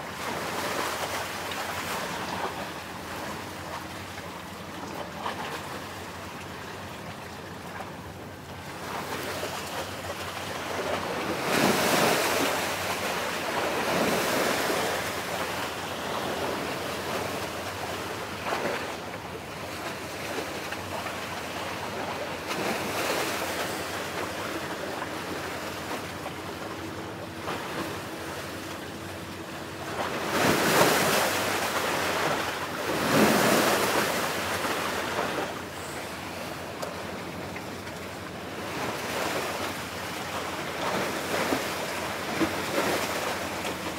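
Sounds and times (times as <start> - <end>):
sea waves washing on shore: 0.0 - 43.9.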